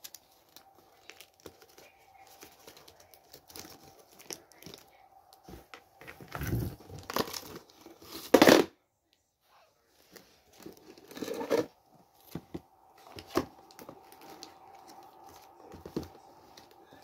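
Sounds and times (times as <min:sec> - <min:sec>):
plastic ribbon bow crinkling: 0:00.0 - 0:05.0.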